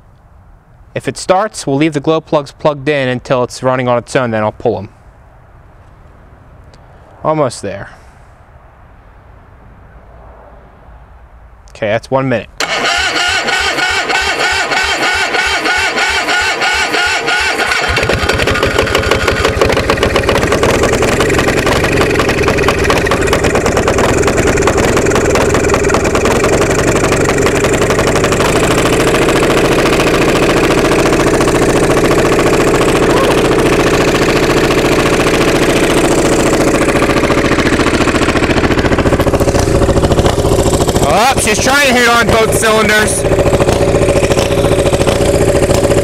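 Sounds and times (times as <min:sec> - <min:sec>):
diesel generator running: 0:12.6 - 0:46.0
electric starter cranking: 0:12.6 - 0:46.0.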